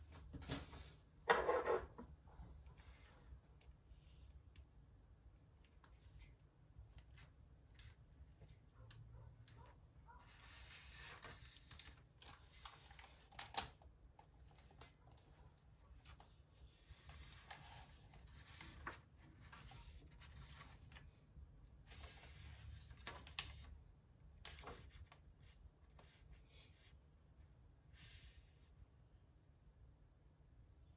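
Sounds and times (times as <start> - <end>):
book pages turning: 10.3 - 13.8, 16.0 - 21.2, 21.8 - 23.8.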